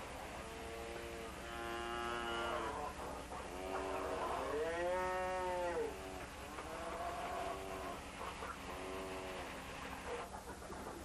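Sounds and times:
cattle mooing: 1.0s - 3.0s, 3.6s - 8.0s.

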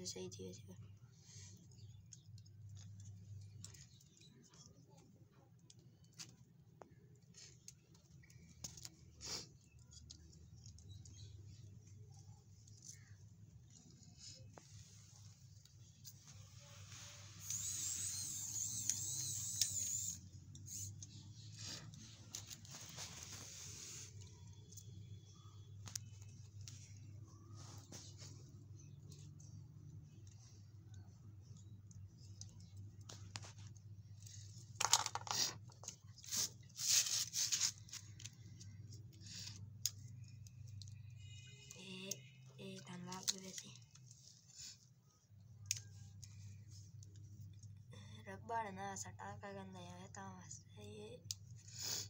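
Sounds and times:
plastic parts scraping and rustling: 12.6s - 24.9s, 32.5s - 39.7s
small motor whining: 17.4s - 21.0s.

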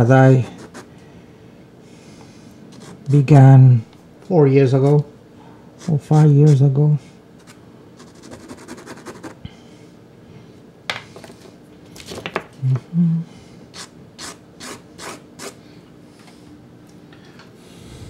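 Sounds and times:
pastel scratching on paper: 2.7s - 3.0s, 7.4s - 9.4s.

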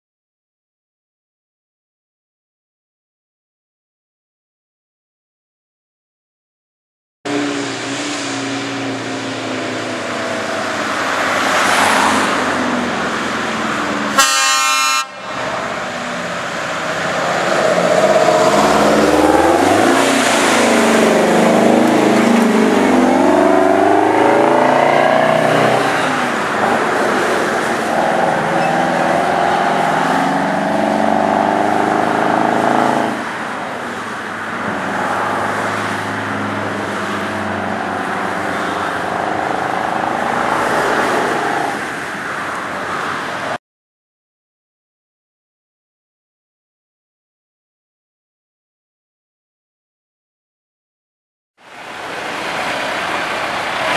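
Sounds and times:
diesel truck engines: 7.3s - 43.6s, 51.6s - 53.9s
road and wind noise: 7.3s - 43.6s, 51.6s - 53.9s
truck air horns blowing: 14.2s - 15.5s.

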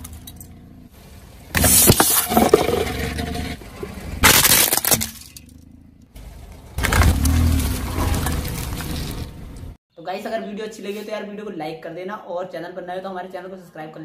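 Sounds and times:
tyre crunching objects: 1.4s - 5.6s, 6.2s - 9.8s
sharp crack: 3.6s - 5.6s, 6.5s - 9.4s.

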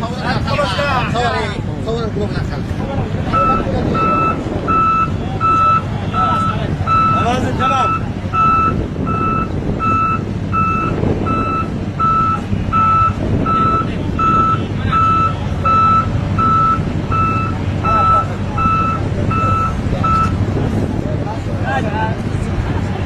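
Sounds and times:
road roller engine running: 0.0s - 23.0s
backup alarm beeping: 3.3s - 20.4s.

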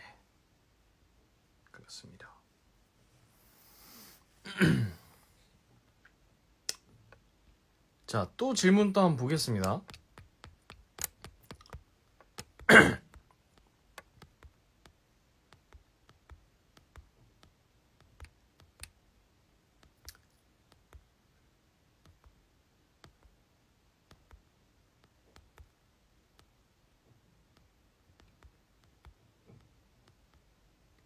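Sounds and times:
fingers tapping smartphone: 9.5s - 21.3s, 21.9s - 23.4s, 24.0s - 31.0s.

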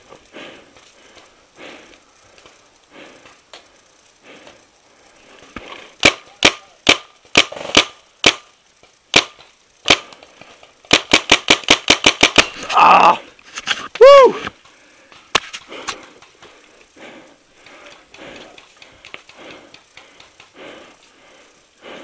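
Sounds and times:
paintball marker firing: 5.6s - 8.5s, 9.1s - 10.2s, 10.9s - 12.6s.

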